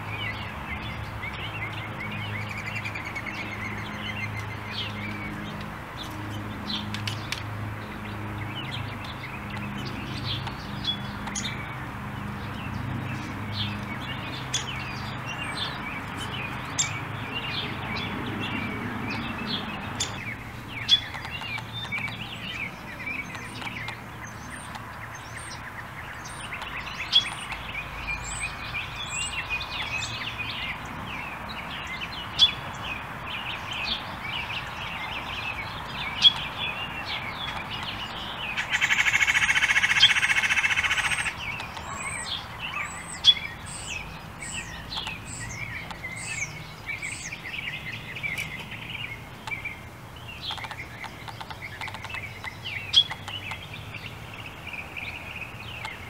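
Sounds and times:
songbirds chirping and trilling: 0.0 - 56.0.

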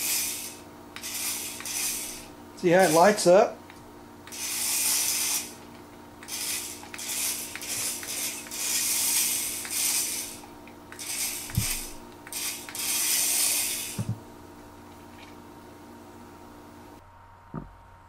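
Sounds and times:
toy car motor whirring: 0.0 - 3.2, 4.2 - 14.0
dull thump: 14.0 - 14.2.

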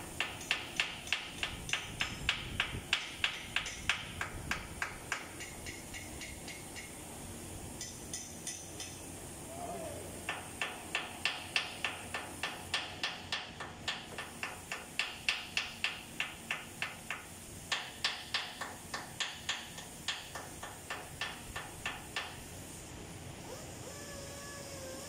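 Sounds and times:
hammer striking chisel on metal: 0.2 - 7.0, 7.8 - 9.0, 10.3 - 22.4.

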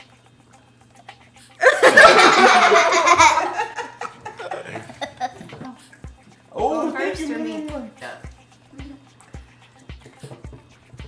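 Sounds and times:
people laughing together: 1.6 - 5.8.

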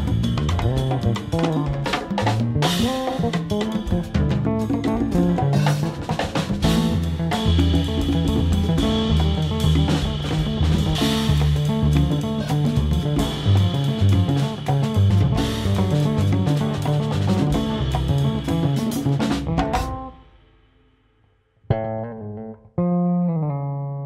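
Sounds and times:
electric bass lines: 0.0 - 20.2, 21.7 - 24.0
latin jazz ensemble: 0.0 - 20.4.

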